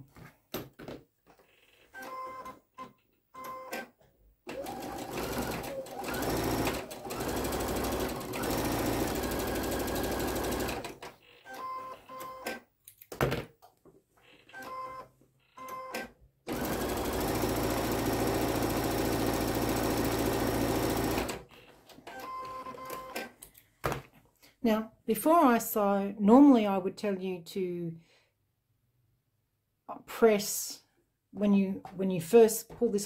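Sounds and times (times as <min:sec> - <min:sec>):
sewing machine running: 0:04.5 - 0:11.1, 0:16.5 - 0:21.5.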